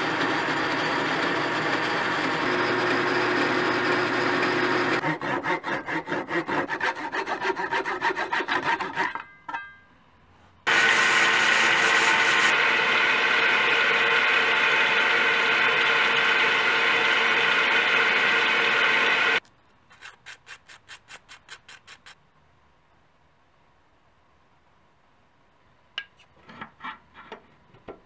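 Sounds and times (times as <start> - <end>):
belt sander grinding wood: 0.0 - 9.1, 10.7 - 22.1.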